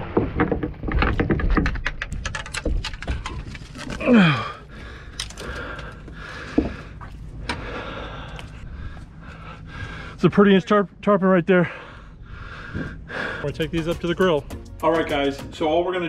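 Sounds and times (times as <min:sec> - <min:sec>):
person grunting with effort: 0:04.0 - 0:04.6.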